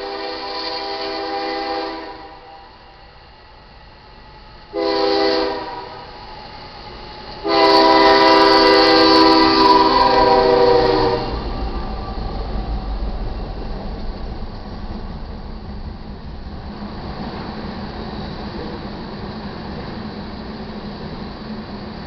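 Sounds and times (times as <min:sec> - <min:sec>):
locomotive air horn blasts: 0:00.0 - 0:02.5, 0:04.7 - 0:06.1, 0:07.4 - 0:11.5
locomotive engine and wheels rumbling: 0:00.0 - 0:22.0.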